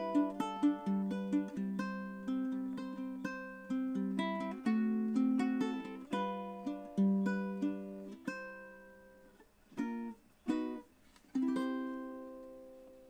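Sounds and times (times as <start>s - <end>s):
ukulele played fingerstyle: 0.0s - 13.0s.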